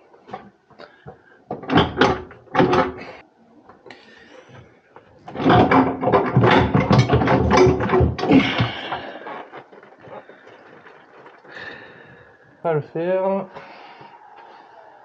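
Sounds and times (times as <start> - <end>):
water heater tank scraping and rattling: 1.5 - 3.2, 5.2 - 9.5.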